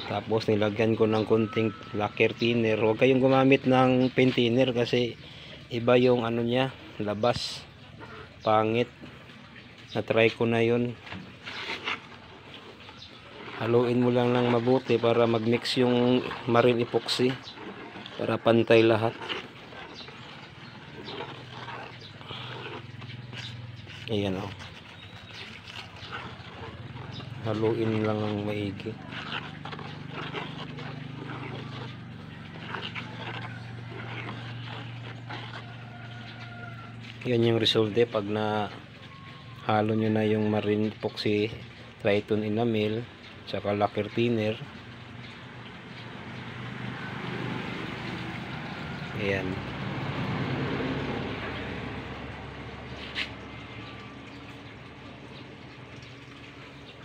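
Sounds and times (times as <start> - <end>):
thick paint stirred in plastic tub: 0.0 - 57.0
vehicle engine running: 46.0 - 55.4.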